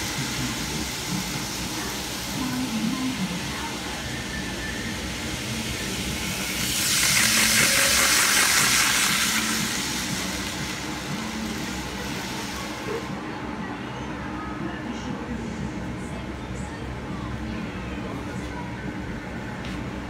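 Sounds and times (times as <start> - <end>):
model train rolling hiss: 0.0 - 12.8.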